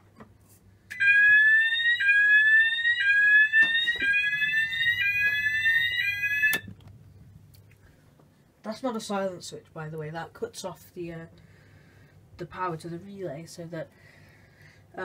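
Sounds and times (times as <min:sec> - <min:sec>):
fire alarm rising electronic tone: 0:00.9 - 0:06.7.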